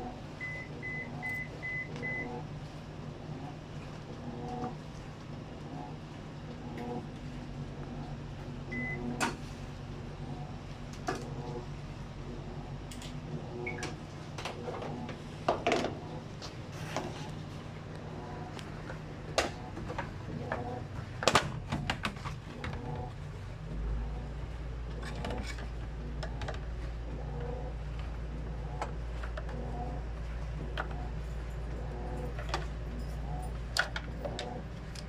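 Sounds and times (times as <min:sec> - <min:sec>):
clicks and knocks of handling parts: 0:33.7 - 0:35.0.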